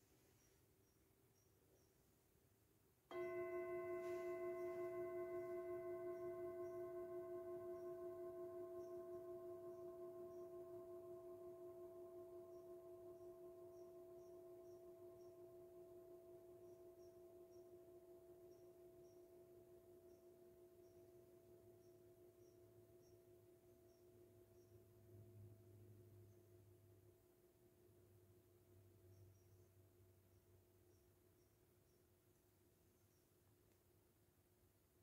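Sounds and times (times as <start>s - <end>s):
metal singing bowl ringing: 3.1s - 23.1s.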